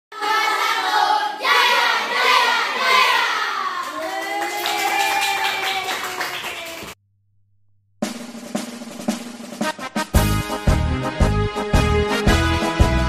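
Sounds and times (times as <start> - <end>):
children singing: 0.1 - 3.8
hand clapping: 3.8 - 7.0.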